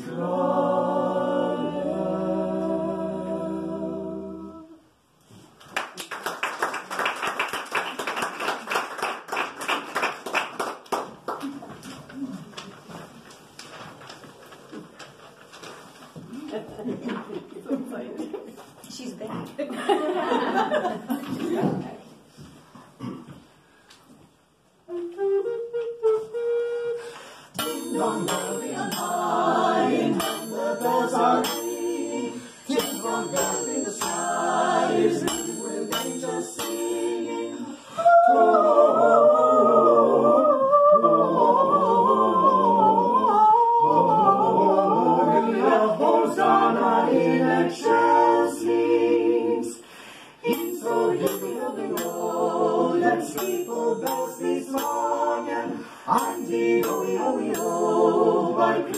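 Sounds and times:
ensemble singing a cappella: 0.0 - 5.0, 27.5 - 58.9
small bells jingling: 27.6 - 37.9, 53.3 - 55.4, 56.1 - 58.1.

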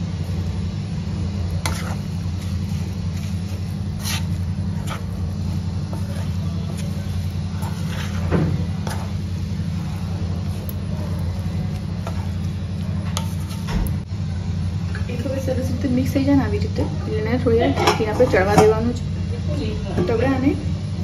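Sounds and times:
spoon scraping metal pan: 1.6 - 9.2, 13.1 - 13.7.

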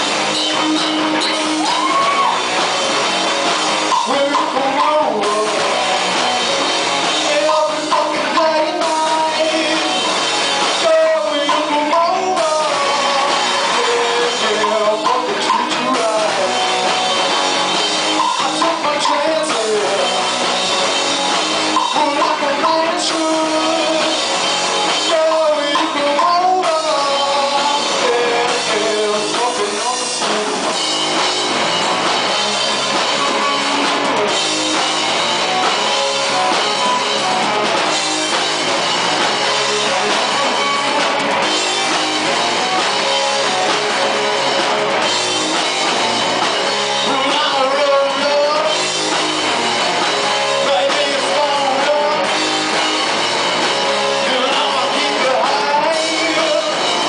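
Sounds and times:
drum kit: 0.0 - 57.0
electric guitars: 0.0 - 57.0
lead singer singing: 3.9 - 16.9, 18.2 - 20.4, 21.7 - 31.0, 46.8 - 48.8, 50.4 - 52.4, 53.9 - 57.0.

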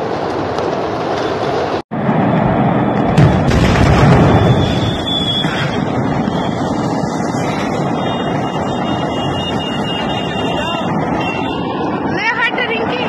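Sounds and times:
sharp explosion blast: 2.0 - 6.8.

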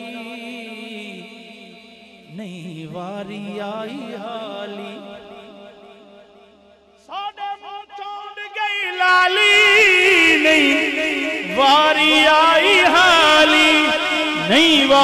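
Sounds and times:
man singing melismatic vocal run: 0.0 - 5.4, 7.1 - 15.0.

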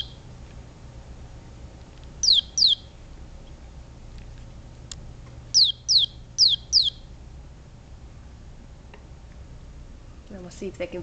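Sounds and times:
electronic toy chirps: 0.0 - 0.2, 2.2 - 2.9, 5.5 - 7.1.

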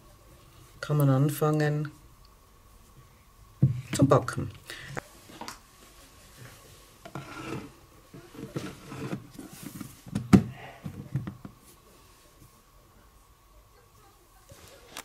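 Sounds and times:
plastic rubbing and scraping: 7.0 - 10.3.

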